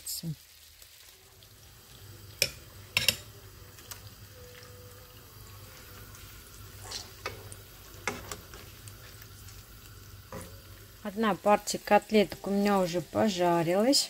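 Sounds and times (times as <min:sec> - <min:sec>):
chicken frying in a pan: 0:00.0 - 0:14.0
metal spatula scraping a pan: 0:05.6 - 0:09.2.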